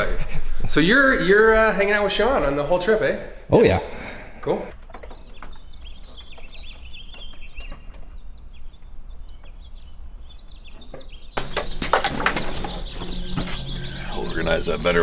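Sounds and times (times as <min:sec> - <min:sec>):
small birds chirping: 0:00.0 - 0:15.0
knocks and clatter: 0:04.7 - 0:13.8.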